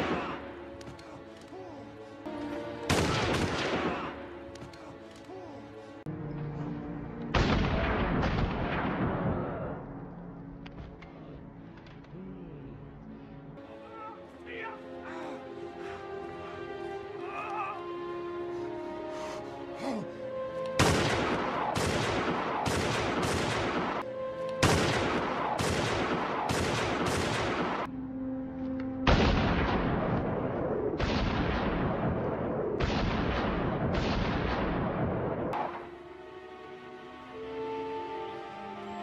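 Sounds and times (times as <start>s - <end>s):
faint music: 0.0s - 32.6s
gunshots with ringing echo: 2.8s - 4.2s, 20.8s - 24.0s, 24.6s - 27.9s, 29.0s - 35.6s.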